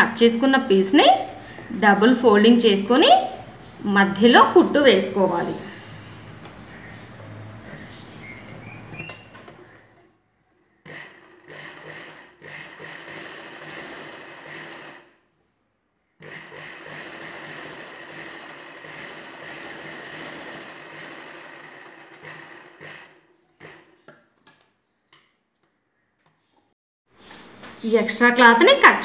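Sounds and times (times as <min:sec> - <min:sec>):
sewing machine running: 0:10.8 - 0:15.2, 0:16.2 - 0:24.0.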